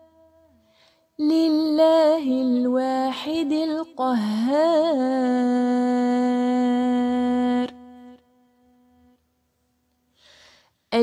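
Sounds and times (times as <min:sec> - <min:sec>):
woman reciting melodically: 0:01.2 - 0:08.2.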